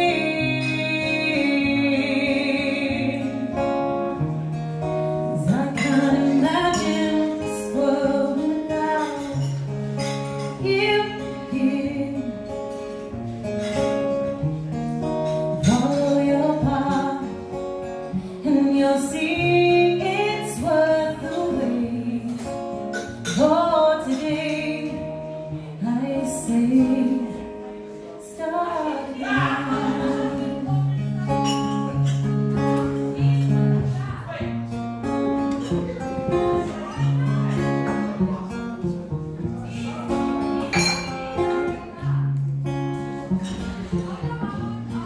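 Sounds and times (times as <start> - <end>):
woman singing: 0.0 - 3.9, 5.3 - 9.6, 10.5 - 12.6, 15.6 - 17.6, 18.4 - 30.9
acoustic guitar strumming: 0.0 - 45.0.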